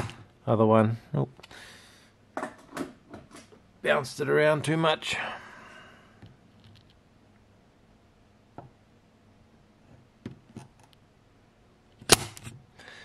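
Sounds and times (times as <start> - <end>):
desoldering pump snapping: 11.9 - 12.6.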